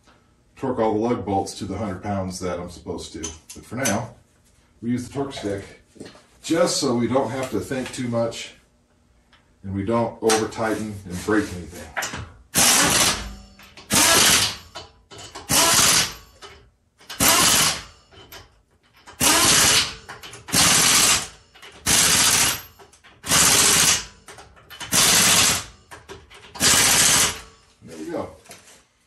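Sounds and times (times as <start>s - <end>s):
impact wrench hammering: 12.0s - 27.5s.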